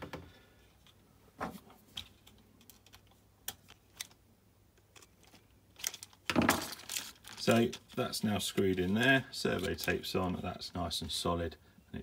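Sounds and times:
plastic parts clattering: 1.9 - 4.2, 4.8 - 10.4.

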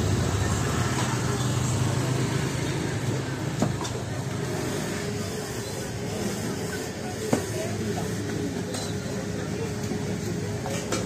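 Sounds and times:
motor scooter engine: 0.0 - 6.3
market chatter: 0.0 - 11.0.

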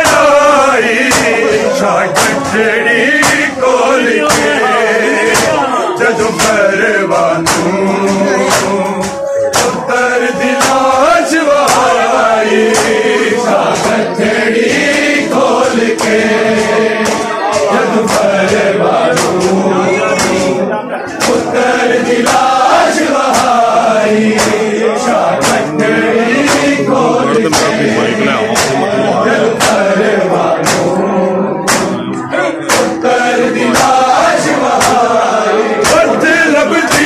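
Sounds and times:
chest-beating slaps: 0.0 - 6.8, 7.4 - 37.0
men chanting together: 0.0 - 37.0.

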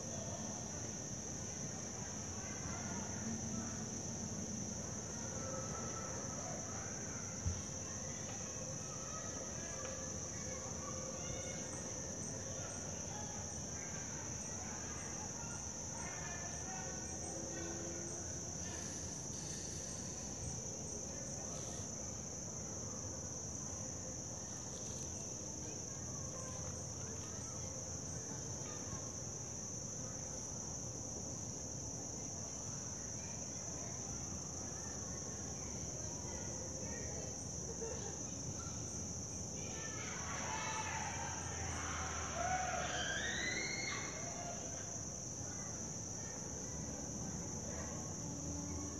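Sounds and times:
insect chorus drone: 0.0 - 48.9.

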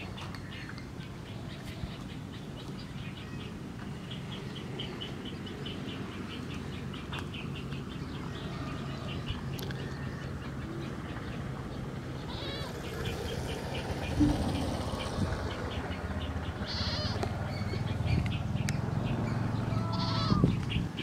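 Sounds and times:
low steady hum: 13.5 - 19.0.

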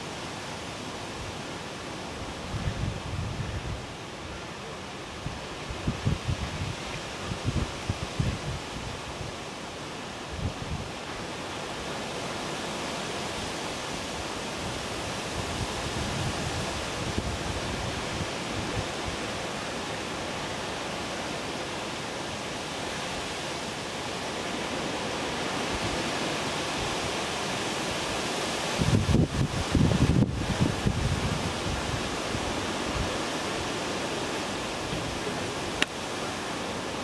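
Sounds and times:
wind on microphone: 2.1 - 4.4, 5.0 - 9.6, 10.2 - 11.4, 13.4 - 20.8, 24.3 - 37.0.

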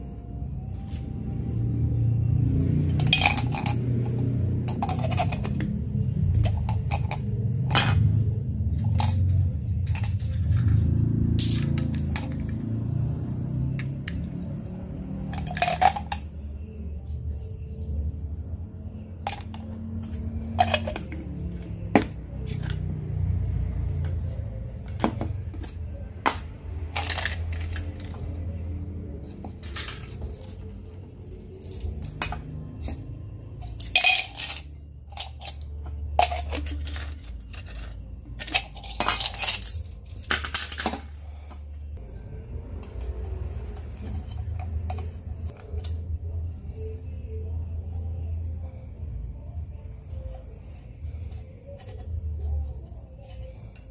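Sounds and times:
low steady background rumble: 0.0 - 53.9
small hard parts clinking: 2.8 - 23.2, 23.8 - 41.7, 42.6 - 46.3.

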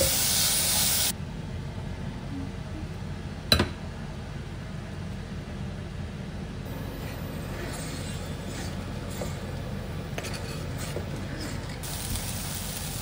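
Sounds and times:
okra sizzling in hot oil: 0.0 - 1.1, 11.8 - 13.0
steady low hum: 1.1 - 13.0
knife scraping on cutting board: 6.9 - 11.8.

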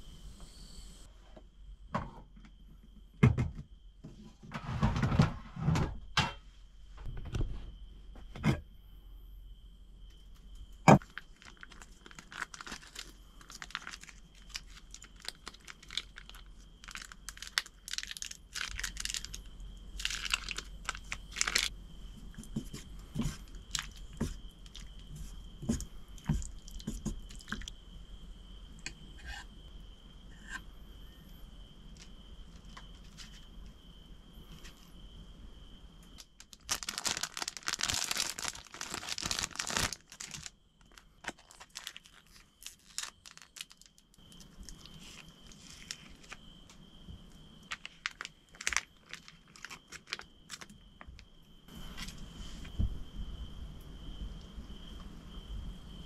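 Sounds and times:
faint high whine: 0.0 - 2.0, 27.8 - 36.2
plastic sachets crinkling and tearing: 11.0 - 21.7, 36.2 - 46.4, 47.7 - 50.7.

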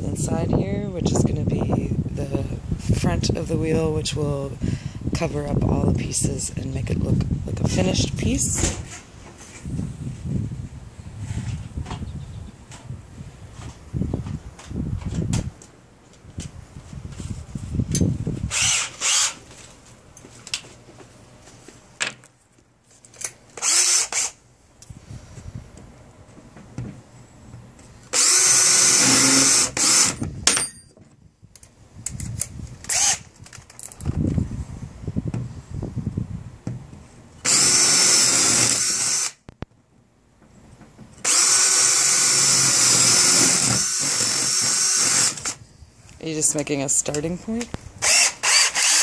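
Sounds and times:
power drill bursts: 18.5 - 19.4, 23.6 - 24.4, 28.1 - 30.2, 32.9 - 33.2, 37.4 - 39.4, 41.2 - 45.6, 48.0 - 49.0.

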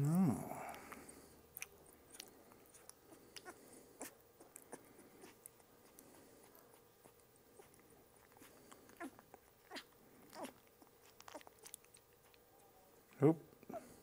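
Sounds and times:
puppy whimpering: 6.7 - 11.6.

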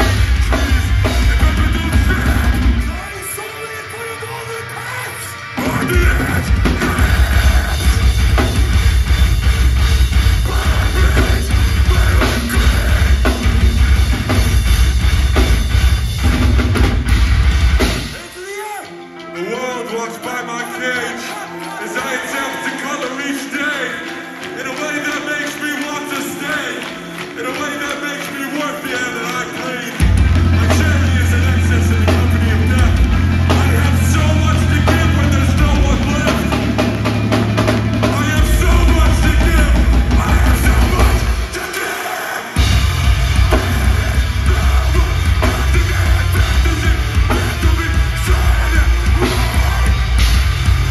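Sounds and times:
pounding bass drum: 0.0 - 3.0, 5.8 - 18.2, 30.0 - 41.7, 42.6 - 50.9
sung vocal: 0.0 - 8.9, 10.2 - 14.6, 18.1 - 50.9
live metal band playing loud: 0.0 - 50.9.

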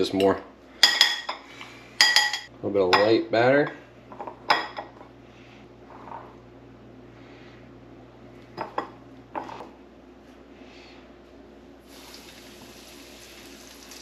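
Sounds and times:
utensil clinking against dish: 2.0 - 3.2
fish sizzling in oil: 11.8 - 14.0.

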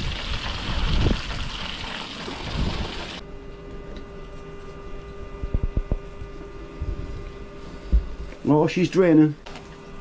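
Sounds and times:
water gushing from pump outlet: 0.0 - 3.2
electric pump humming underwater: 0.0 - 10.0.

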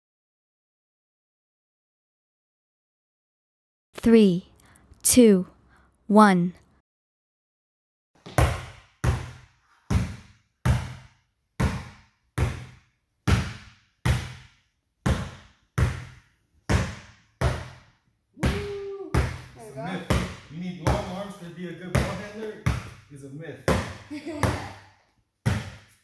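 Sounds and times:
basketball bouncing on court floor: 8.2 - 21.2, 21.9 - 23.1, 23.7 - 24.8, 25.4 - 26.0.

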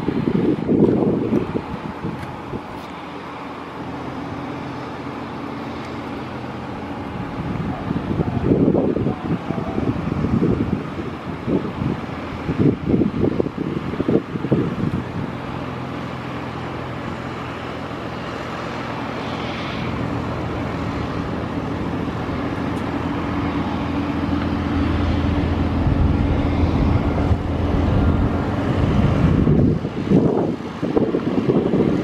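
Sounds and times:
wind buffeting microphone: 0.0 - 2.9, 6.6 - 15.7, 19.8 - 32.0
engine drone: 0.0 - 32.0.

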